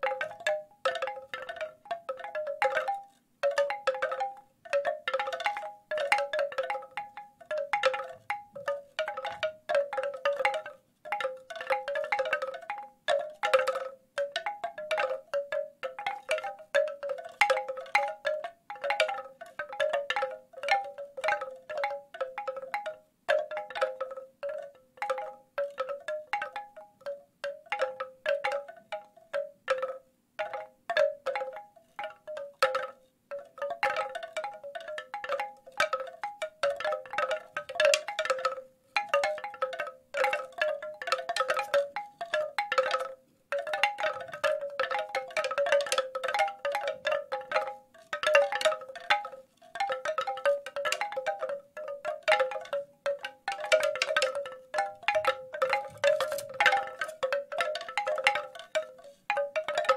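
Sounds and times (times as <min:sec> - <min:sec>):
bamboo wind chimes knocking: 0:00.0 - 0:59.9.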